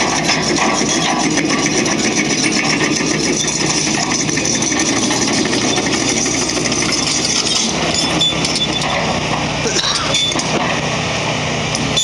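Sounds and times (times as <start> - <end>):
rattling: 0.0 - 9.0
heavy machine engine running: 0.0 - 12.0.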